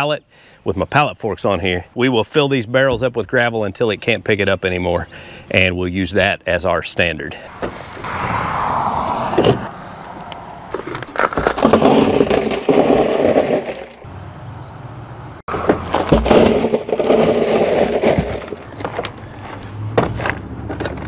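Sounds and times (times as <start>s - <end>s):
gravel rattling into plastic barrel: 10.7s - 14.1s, 15.5s - 21.0s.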